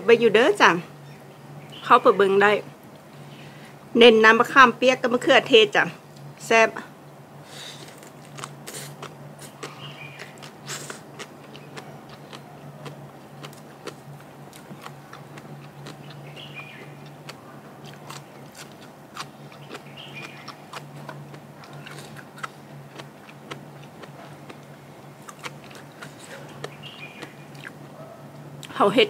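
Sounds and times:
steady low hum: 0.0s - 29.0s
person chewing crunchy food: 7.7s - 28.5s.

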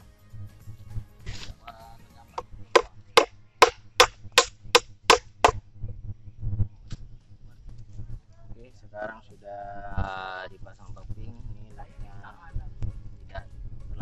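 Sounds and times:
hatchet chopping wood: 2.8s - 4.5s, 5.1s - 5.6s.

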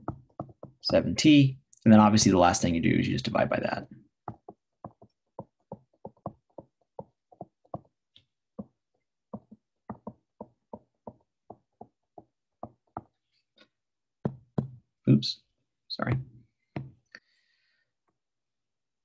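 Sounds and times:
stylus tapping on touchscreen: 0.0s - 1.0s, 9.4s - 13.2s.

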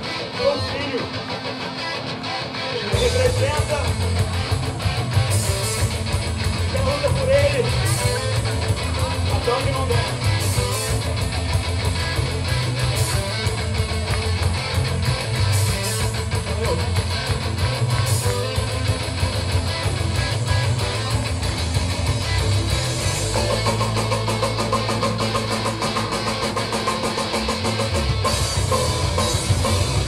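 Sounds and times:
live rock band playing: 0.0s - 30.0s.

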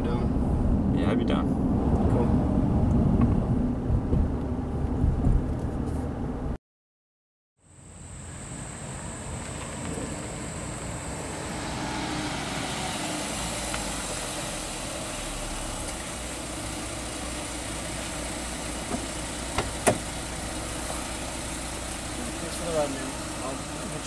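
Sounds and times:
road noise: 0.0s - 6.6s, 7.6s - 24.0s
car engine idling: 12.8s - 24.0s
car door unlatching and opening: 18.8s - 20.1s.

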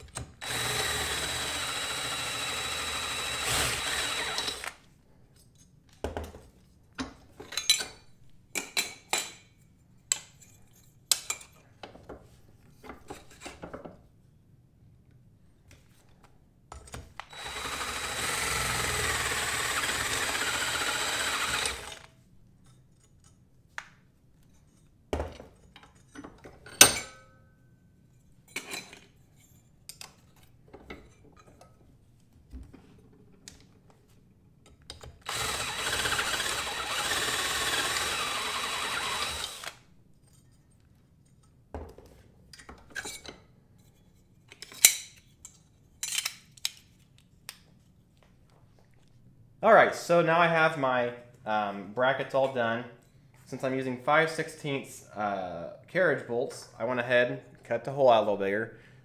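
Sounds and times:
drill whining through metal: 0.1s - 4.8s, 17.3s - 22.1s, 35.2s - 39.8s.

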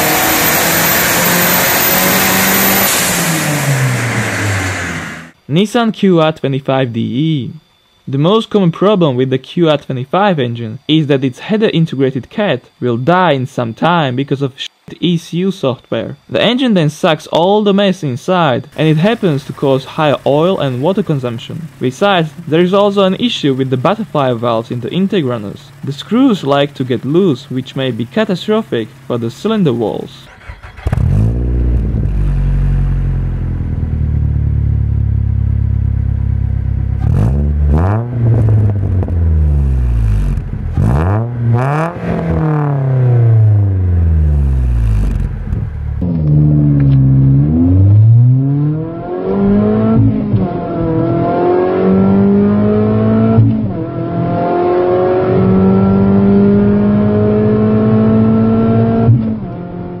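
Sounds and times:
car engine accelerating hard: 0.0s - 5.4s, 18.7s - 60.0s
car engine idling and revving: 0.0s - 5.4s, 18.7s - 60.0s.

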